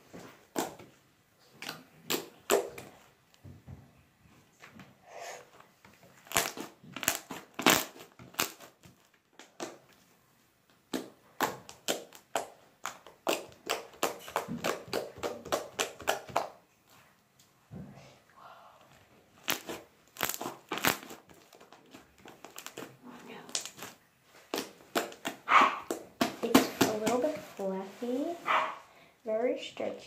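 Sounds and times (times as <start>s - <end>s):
slime squished by hand popping: 1.6s - 2.9s.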